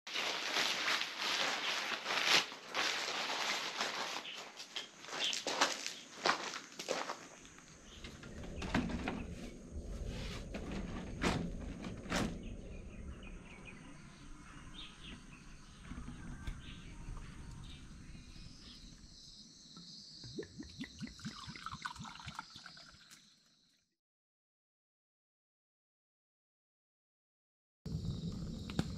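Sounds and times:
birds chirping: 2.8 - 23.3.

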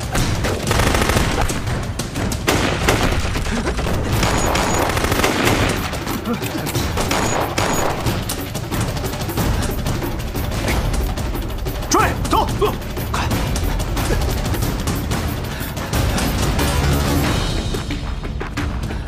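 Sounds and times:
pistol and rifle shots: 0.0 - 1.8, 2.4 - 6.0, 7.0 - 8.3.

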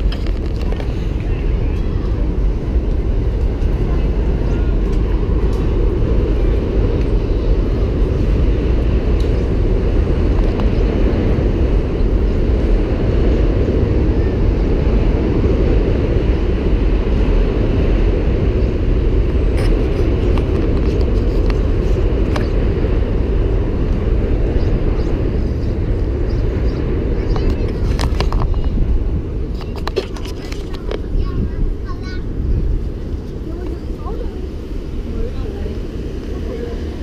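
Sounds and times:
low rumble of city noise: 0.0 - 37.0.

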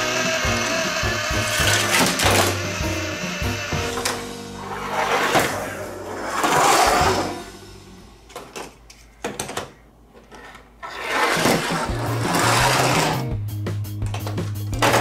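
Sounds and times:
toy motor whirring: 0.0 - 3.8, 10.8 - 13.2.

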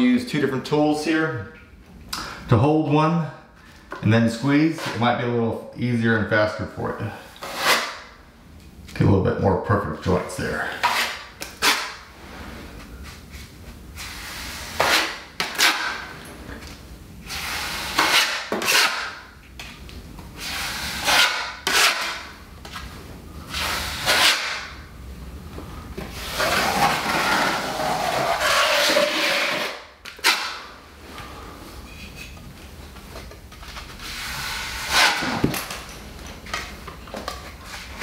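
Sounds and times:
taping knives scraping: 7.4 - 8.1, 14.0 - 16.0, 17.3 - 19.2, 20.4 - 22.3, 23.5 - 24.7, 26.2 - 30.7, 34.0 - 35.5.

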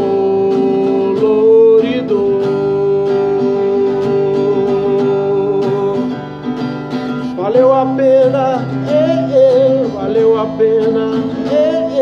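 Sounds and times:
man singing a long note: 0.0 - 6.0
strummed acoustic guitar: 0.0 - 12.0.

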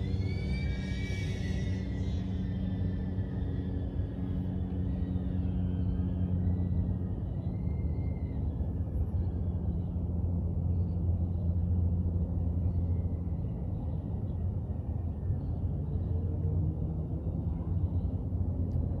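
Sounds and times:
drone propellers whining: 0.0 - 10.3
low rumble of airflow: 0.0 - 19.0.

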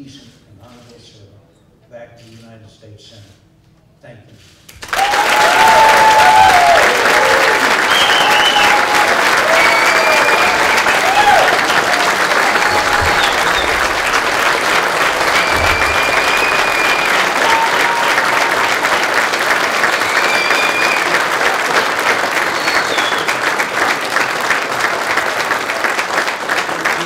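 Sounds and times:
crowd applauding: 4.7 - 27.0
high-pitched whistles or calls: 7.8 - 8.8, 15.0 - 18.2, 19.8 - 21.2, 22.5 - 23.4.

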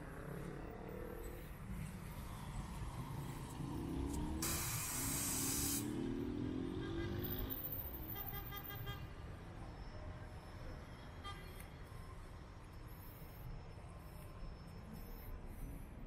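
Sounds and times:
vehicle engines pulling away: 0.6 - 8.0
air brakes hissing: 4.4 - 5.9.

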